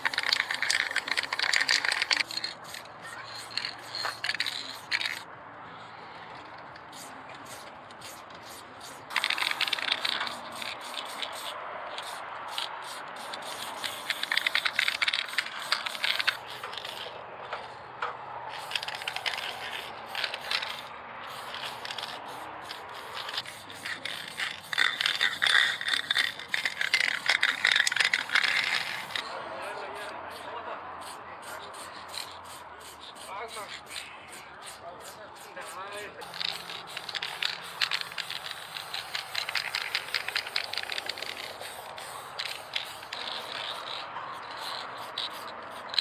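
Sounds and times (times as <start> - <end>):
mixing ball rattling in can: 0.0 - 2.8, 9.1 - 12.7, 13.4 - 17.1, 18.5 - 29.2, 36.2 - 44.0
spray paint can hissing: 0.0 - 5.3, 6.4 - 17.8, 18.5 - 46.0.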